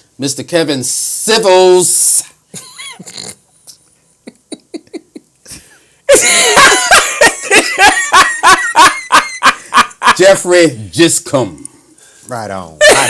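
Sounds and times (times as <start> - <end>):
men laughing: 4.3 - 10.4, 12.8 - 13.0.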